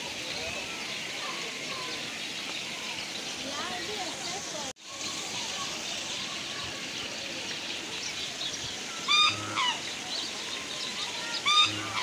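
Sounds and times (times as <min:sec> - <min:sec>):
falling water: 0:00.0 - 0:12.0
waterfowl honking calls: 0:09.0 - 0:10.0, 0:11.4 - 0:12.0.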